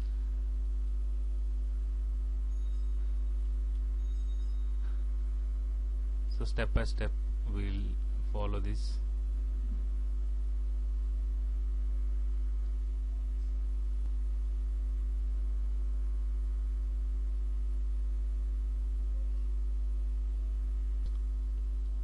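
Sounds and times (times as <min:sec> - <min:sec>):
low electrical hum: 0:00.0 - 0:22.0
faint high tones: 0:02.4 - 0:05.2.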